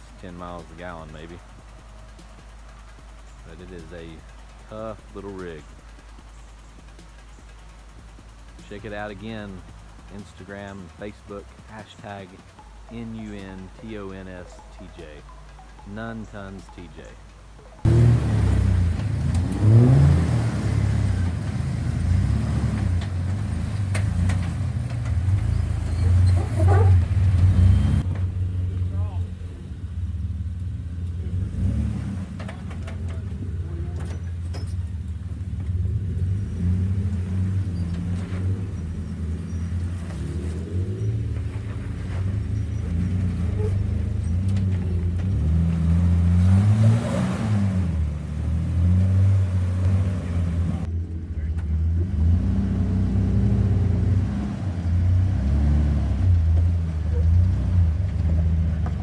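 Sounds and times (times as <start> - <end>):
engine rumbling at low revs: 0.0 - 59.0.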